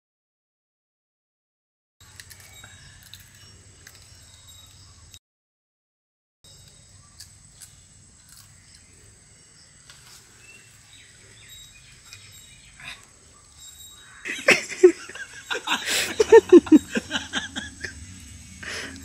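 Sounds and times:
men laughing: 0:14.2 - 0:19.0.

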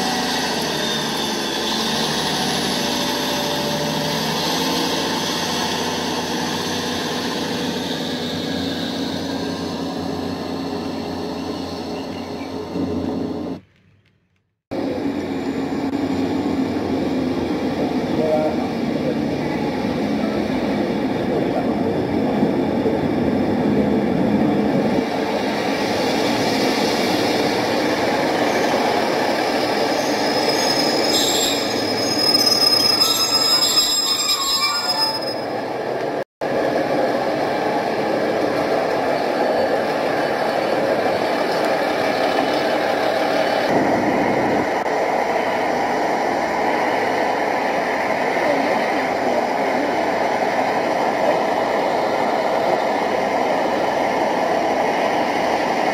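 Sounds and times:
diesel train arriving: 0:00.0 - 0:55.9
high squealing: 0:29.6 - 0:35.7.

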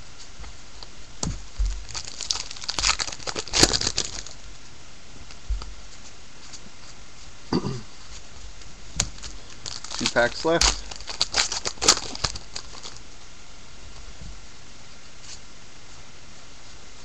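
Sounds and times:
wrapper crinkling: 0:01.6 - 0:04.5, 0:09.0 - 0:13.0.

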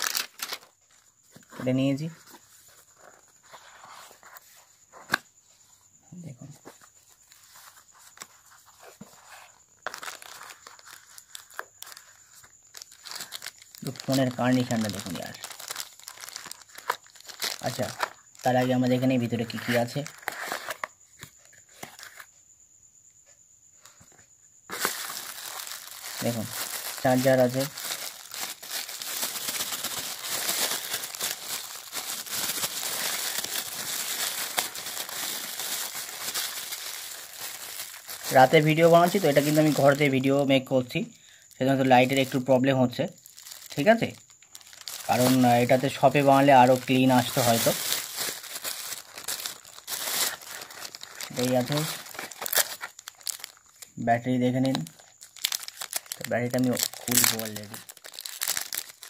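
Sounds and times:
plastic bag crinkling: 0:00.0 - 0:02.1, 0:08.9 - 0:20.9, 0:24.7 - 0:40.4, 0:41.5 - 0:42.5, 0:43.1 - 0:53.9, 0:54.5 - 0:59.0.

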